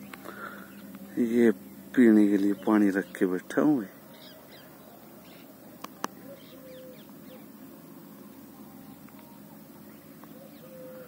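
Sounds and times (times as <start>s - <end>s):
distant birds calling: 0.0s - 11.0s
faint bird chirps: 0.0s - 11.0s
faint steady background noise: 0.0s - 11.0s
bird low coo: 4.0s - 11.0s.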